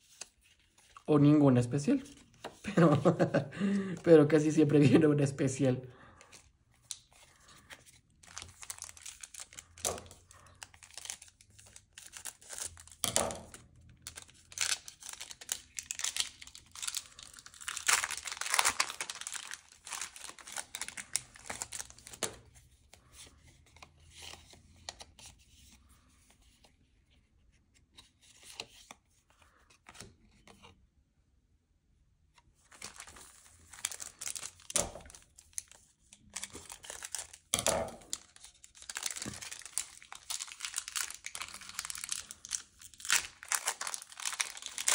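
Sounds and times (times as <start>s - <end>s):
foil wrapper tearing and crinkling: 8.2s - 22.3s, 32.7s - 44.9s.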